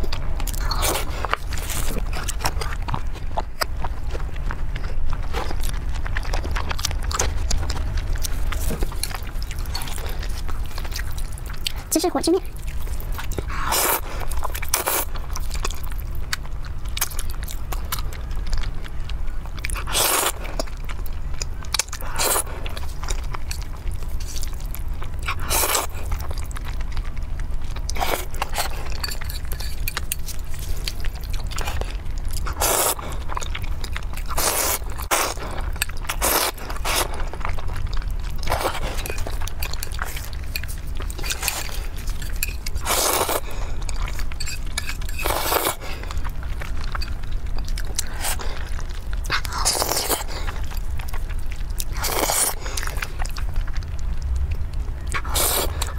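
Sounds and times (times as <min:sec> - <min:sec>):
wet chewing: 0:00.0 - 0:55.9
noodle slurping: 0:32.4 - 0:33.3, 0:55.2 - 0:55.9.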